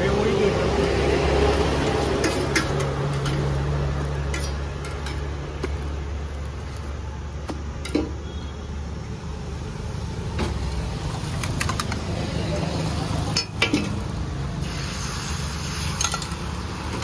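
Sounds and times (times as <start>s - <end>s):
utensils clinking on griddle pan: 2.0s - 5.9s, 13.3s - 14.0s, 15.8s - 16.4s.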